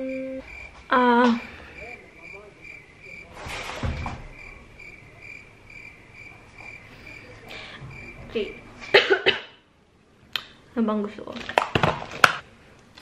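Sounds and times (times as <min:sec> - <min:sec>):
rustle with low thump: 0:03.4 - 0:04.3.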